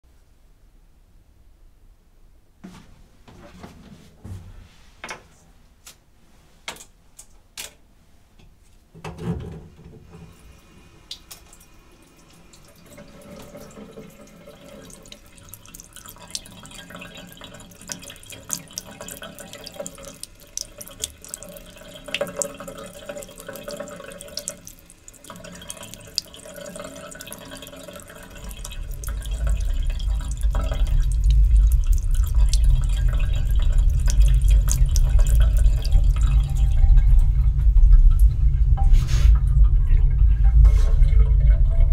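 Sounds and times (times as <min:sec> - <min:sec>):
tap water splashing into sink: 0:12.5 - 0:39.3
deep low rumble: 0:28.4 - 0:41.9.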